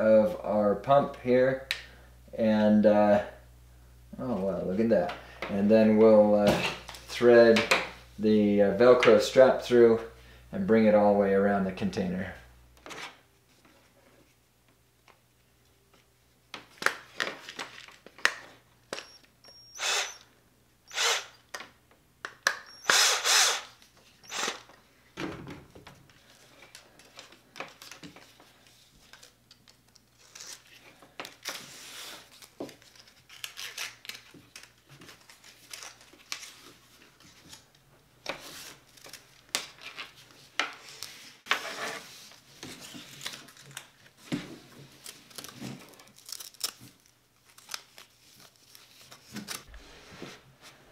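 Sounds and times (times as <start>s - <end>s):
cordless drill driving screws: 19.4s - 20.2s, 20.9s - 21.4s, 22.7s - 24.7s
velcro strap rustling: 45.0s - 49.7s.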